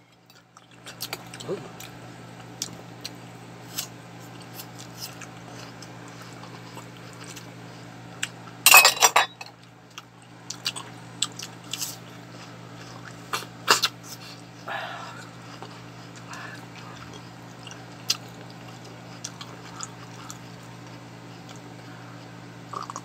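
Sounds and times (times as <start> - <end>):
steady low hum: 0.0 - 23.0
chewing: 0.1 - 8.6, 9.6 - 14.4, 15.1 - 23.0
spoon clinking on a plate: 8.7 - 9.4.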